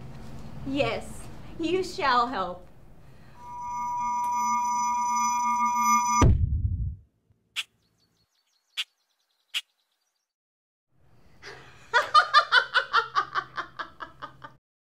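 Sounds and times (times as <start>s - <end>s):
high bird chirps: 7.6s - 10.3s
woman laughing loudly: 11.4s - 14.6s.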